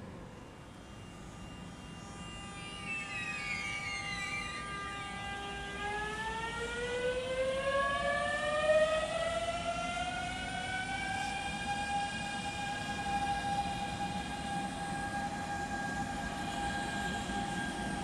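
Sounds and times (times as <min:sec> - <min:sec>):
train traction motor whine: 0:00.0 - 0:18.0.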